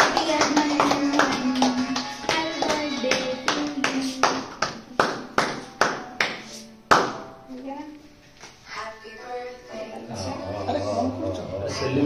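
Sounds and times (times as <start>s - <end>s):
rhythmic hand clapping: 0.0s - 7.3s.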